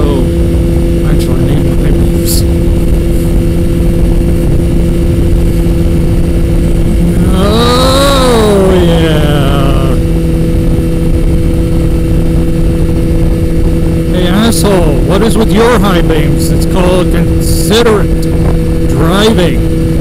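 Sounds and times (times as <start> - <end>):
motorcycle engine cruising: 0.0 - 20.0
wind rumble on microphone: 0.0 - 20.0
rising and falling pitched sound: 6.4 - 10.8.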